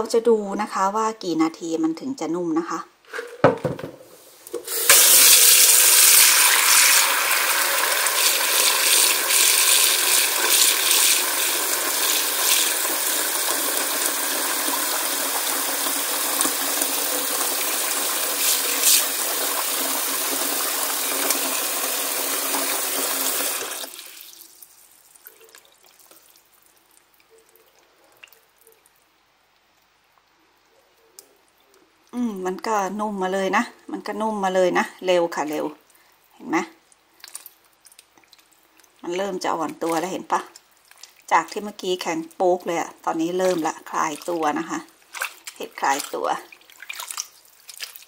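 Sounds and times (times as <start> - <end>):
tap running into plastic bowl: 3.2 - 5.0
small water splashes: 37.1 - 39.0, 39.6 - 41.6, 43.2 - 48.0.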